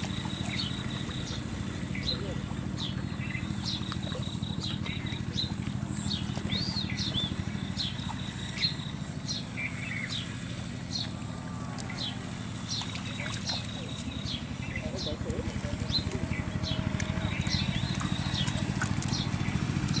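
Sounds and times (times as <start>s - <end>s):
birds chirping: 0.0s - 20.0s
low motor hum: 0.0s - 20.0s.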